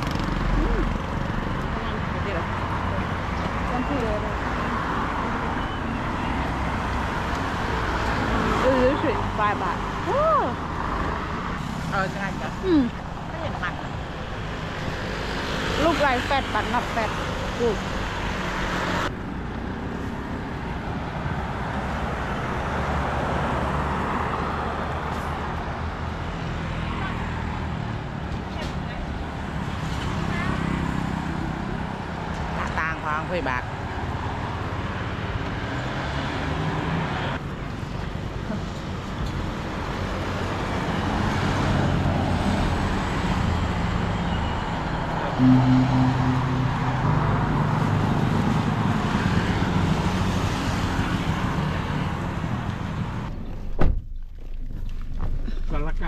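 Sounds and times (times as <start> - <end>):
cars and motorbikes passing: 0.0 - 53.7
vehicle engine approaching: 45.4 - 53.5.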